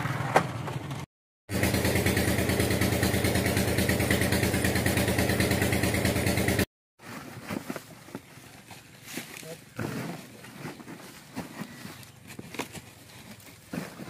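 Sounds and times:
pump engine running: 1.5s - 6.7s.

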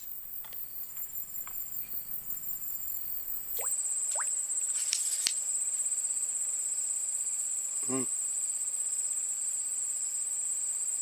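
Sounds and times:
insects chirping: 0.0s - 7.4s.

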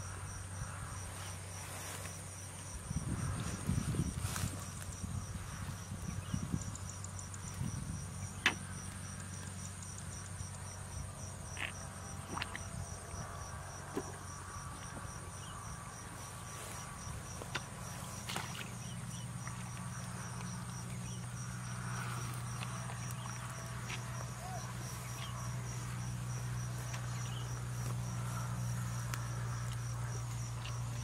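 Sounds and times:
insects chirping: 0.0s - 31.0s
clicks and rustles in grass: 1.2s - 6.0s.

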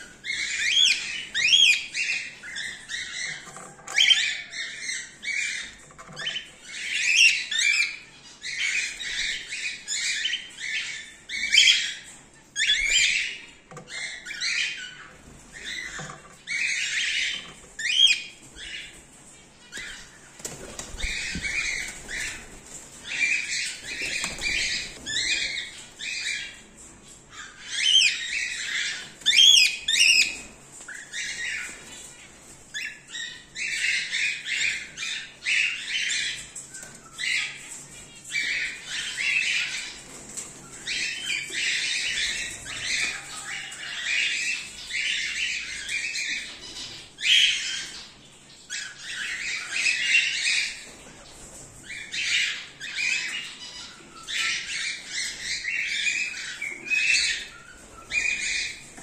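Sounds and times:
cockatiels chattering and calling: 0.0s - 59.0s
wings flapping: 19.8s - 25.4s.

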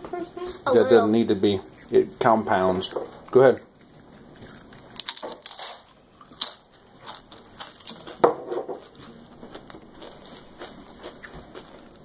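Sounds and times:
chip crunching: 3.4s - 12.0s.

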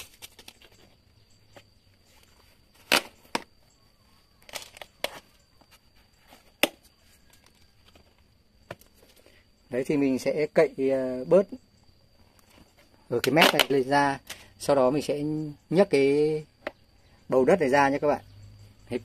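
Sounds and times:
plastic plant pot cracking: 0.0s - 0.9s, 2.8s - 3.6s, 4.4s - 5.3s, 6.4s - 8.1s, 13.2s - 14.4s.

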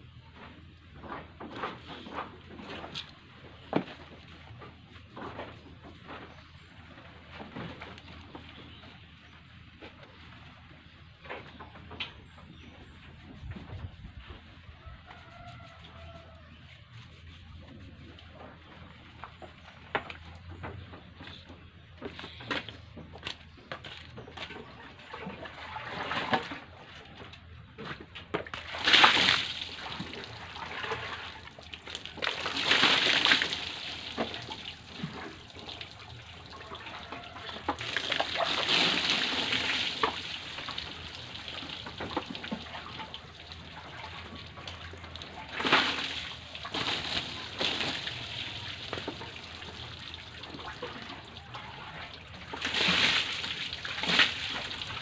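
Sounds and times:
water splashing onto wooden boards: 28.4s - 55.0s
water trickling: 28.7s - 55.0s.

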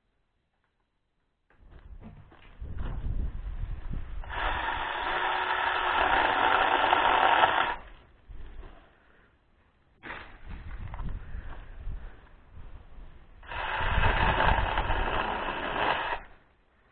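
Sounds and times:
mini chainsaw cutting branch: 4.2s - 7.9s, 13.4s - 16.3s.

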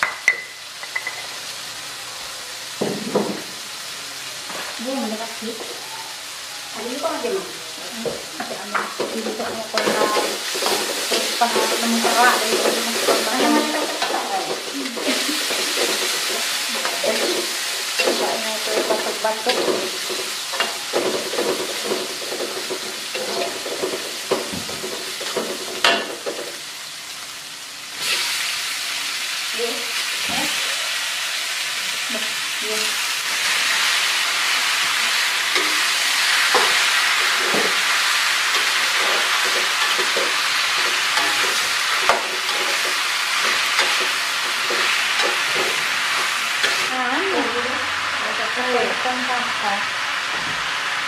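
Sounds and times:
food sizzling in a wok: 0.0s - 51.0s
metal spatula scraping a wok: 9.2s - 26.5s, 35.1s - 46.9s.

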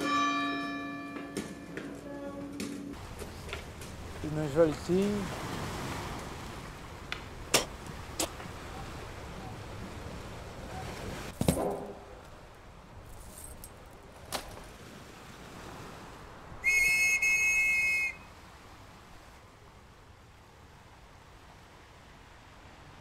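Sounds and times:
faint steady hiss: 2.1s - 23.0s
dull thump: 11.3s - 12.2s
steady high whistle: 16.6s - 18.3s.

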